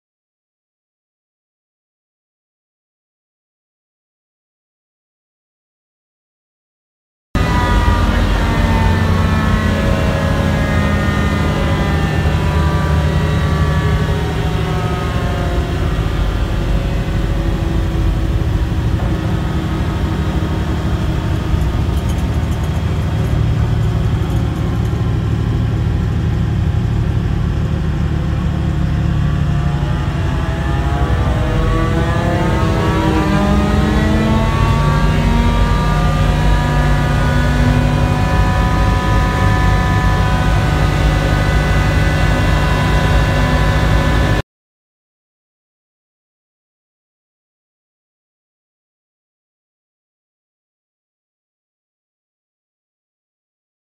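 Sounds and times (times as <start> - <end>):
diesel engine idling: 7.4 - 37.1
hovercraft lift fan: 7.4 - 44.4.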